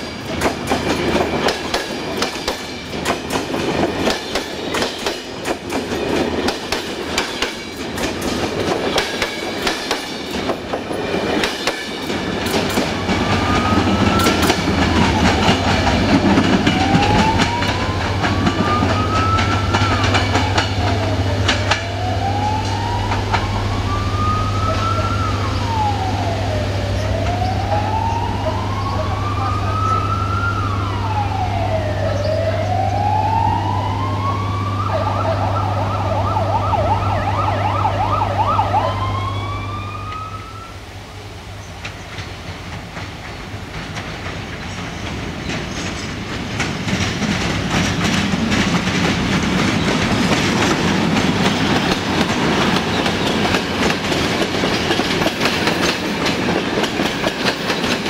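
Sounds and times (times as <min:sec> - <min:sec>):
diesel locomotive rumbling: 0:00.0 - 0:58.0
emergency vehicle siren wailing: 0:12.3 - 0:40.9, 0:46.9 - 0:58.0.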